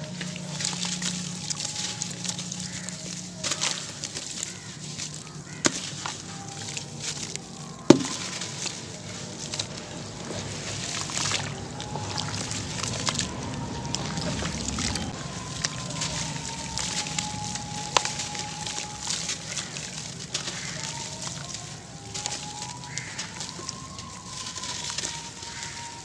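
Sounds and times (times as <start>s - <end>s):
hands sloshing in water: 0.0s - 26.0s.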